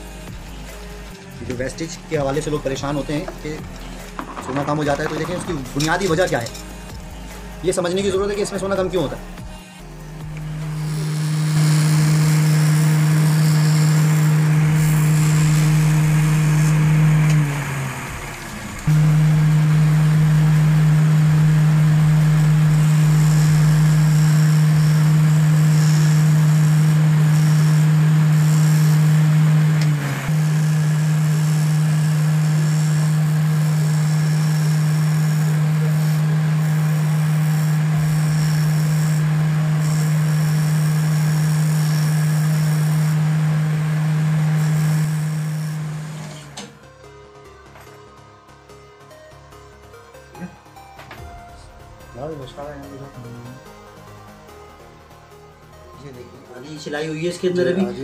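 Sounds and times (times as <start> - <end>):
lathe humming: 1.9 - 46.8.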